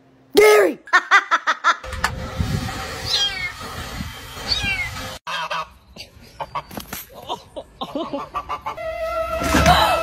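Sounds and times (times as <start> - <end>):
goose honking: 5.3 - 5.8.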